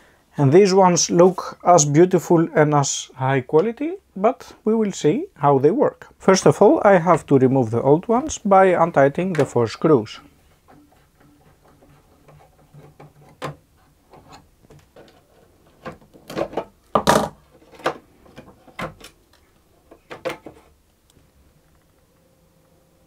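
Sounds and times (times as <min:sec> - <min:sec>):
small clicks scrapes and knocks: 0:10.6 - 0:16.7.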